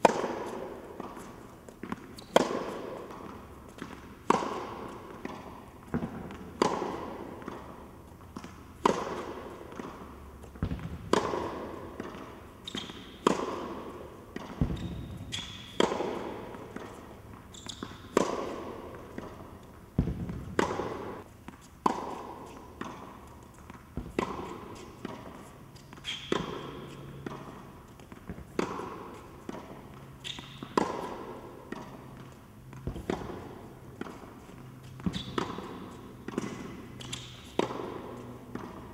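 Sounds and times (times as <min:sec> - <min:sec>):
tennis ball bouncing on court: 0:00.0 - 0:38.9
tennis ball struck by rackets: 0:00.0 - 0:38.9.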